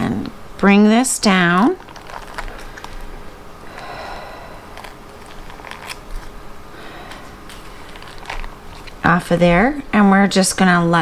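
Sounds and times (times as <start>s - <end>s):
parchment paper rustling: 1.4s - 9.8s.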